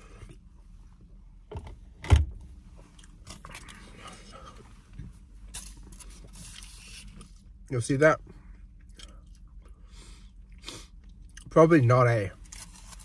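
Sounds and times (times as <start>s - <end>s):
foil crinkling and rustling: 12.4s - 13.0s.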